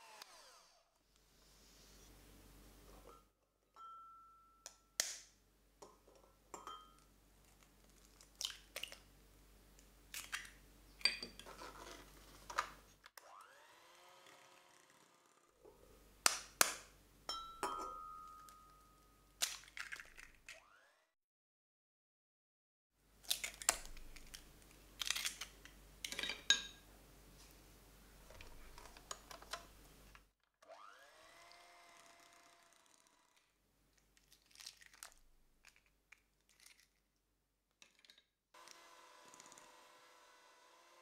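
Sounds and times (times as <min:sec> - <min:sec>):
eggshell cracking and clinking: 0:17.6 - 0:20.6, 0:25.0 - 0:26.7.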